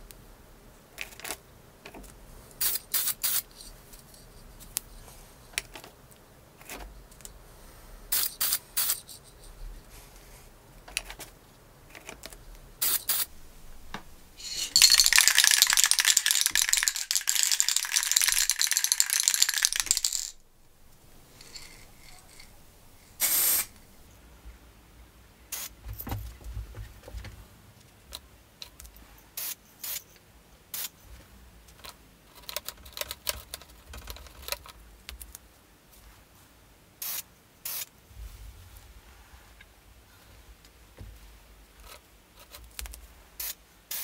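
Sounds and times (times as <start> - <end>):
spray paint can hissing: 2.6 - 3.6, 8.1 - 9.2, 12.8 - 13.3, 14.4 - 20.4, 23.1 - 23.7, 25.5 - 25.7, 29.4 - 30.0, 30.7 - 30.9, 37.0 - 37.9, 43.4 - 44.0.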